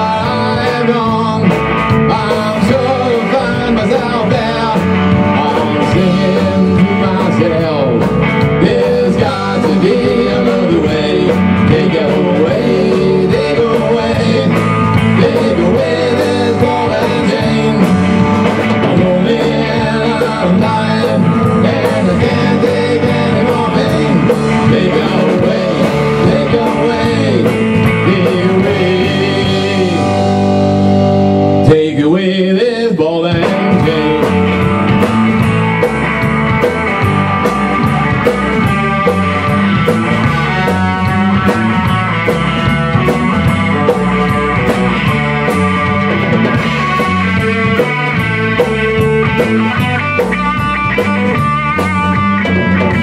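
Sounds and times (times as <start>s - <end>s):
bass guitar: 0.0s - 53.0s
drum kit beat: 0.0s - 53.0s
electric guitar: 0.0s - 53.0s.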